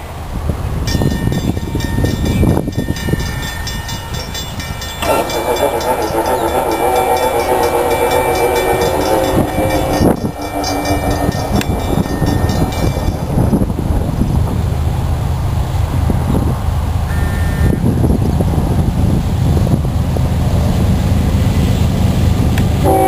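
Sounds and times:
train horn chord: 5.0 - 13.7, 22.8 - 23.0.

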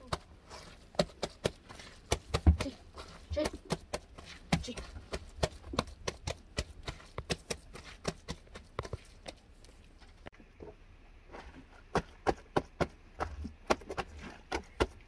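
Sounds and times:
gloved hands patting dung: 0.0 - 10.3.

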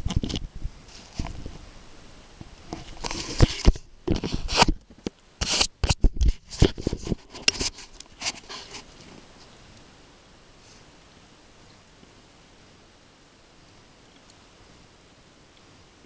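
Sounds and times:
camera handling clicks and scrapes: 2.7 - 4.8, 5.4 - 8.9.

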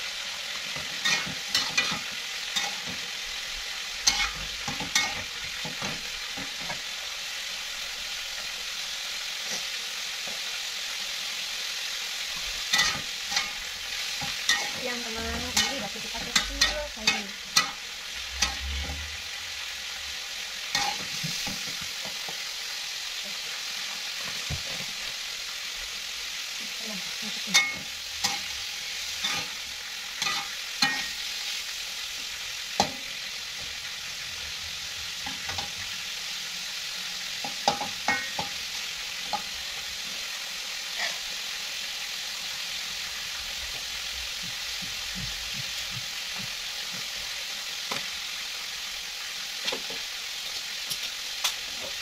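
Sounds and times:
food sizzling in hot oil: 0.0 - 52.0
metal spatula scraping a wok: 0.6 - 6.8, 12.6 - 21.8, 27.4 - 31.8, 40.9 - 41.3.

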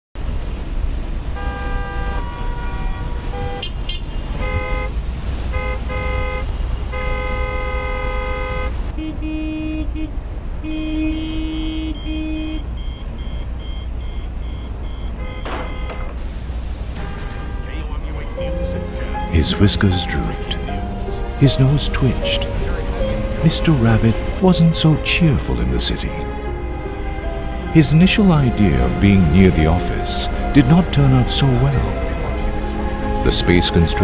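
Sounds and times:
low rumble of traffic: 0.2 - 34.0
car horns honking: 1.4 - 16.2, 16.8 - 34.0
fast repeated beeping: 12.0 - 16.0.

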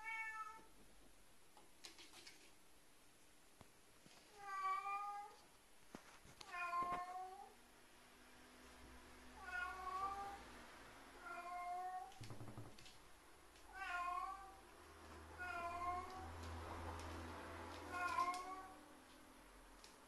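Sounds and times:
cat meowing: 0.0 - 0.7, 4.3 - 5.4, 6.4 - 7.6, 9.4 - 10.4, 11.2 - 12.2, 13.6 - 14.6, 15.3 - 16.5, 17.7 - 18.8.

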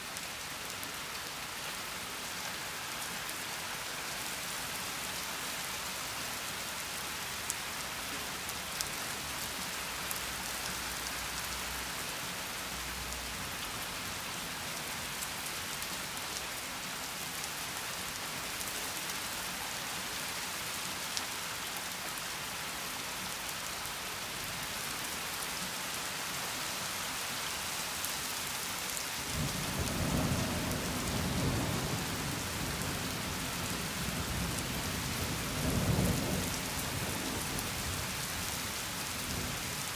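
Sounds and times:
steady rain hissing: 0.0 - 39.9
low rumble of thunder: 29.4 - 37.9.

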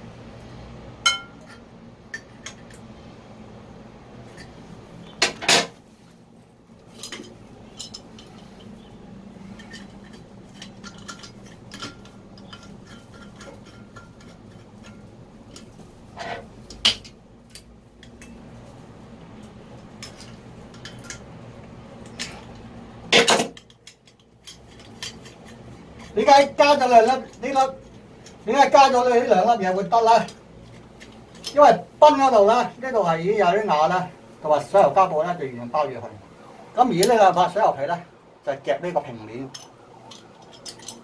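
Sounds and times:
metal plumbing fittings clinking: 6.9 - 8.9, 9.6 - 15.7, 19.8 - 21.2, 23.1 - 26.2, 39.5 - 41.0.

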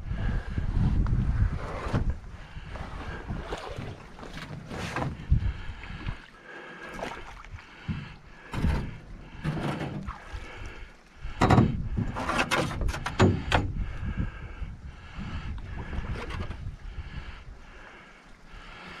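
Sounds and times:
paddle splashing in water: 2.8 - 10.8
paddle knocking metal hull: 11.4 - 13.8.

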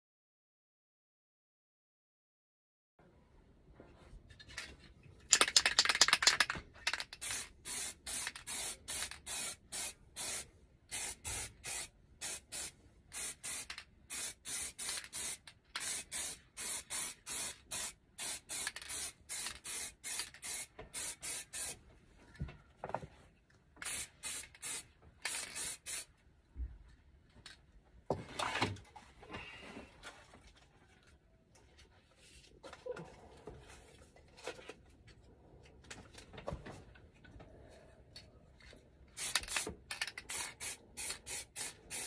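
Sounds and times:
spray can rattling when shaken: 5.3 - 21.8, 23.8 - 26.1, 39.2 - 42.0
short spray bursts: 7.2 - 21.8, 23.8 - 26.1, 39.2 - 39.7, 40.3 - 42.0.

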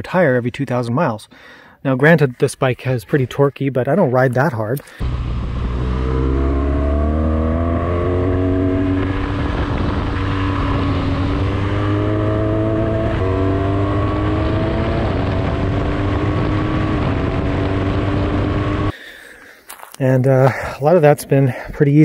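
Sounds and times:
motorcycle engine accelerating: 5.0 - 18.9
wind rushing: 5.0 - 18.9.

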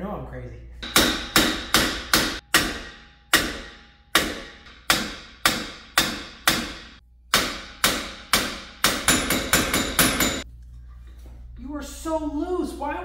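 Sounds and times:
hammer beating on metal: 0.8 - 10.4.

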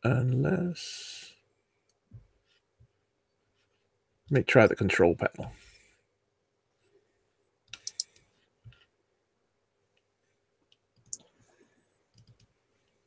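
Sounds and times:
faint computer mouse clicks: 7.7 - 8.8, 12.1 - 12.5.

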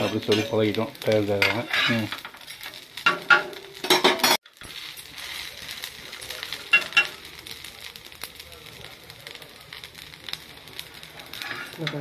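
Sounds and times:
spatula scraping and clinking on pan: 0.0 - 5.5, 6.7 - 7.2, 11.3 - 12.0
food sizzling: 0.0 - 12.0.

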